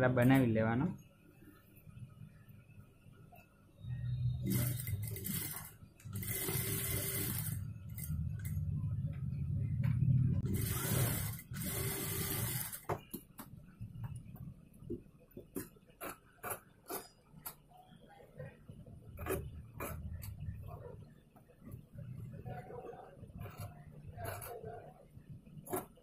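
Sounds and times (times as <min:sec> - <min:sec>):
sewing machine stitching: 0:04.4 - 0:08.6, 0:10.4 - 0:12.9.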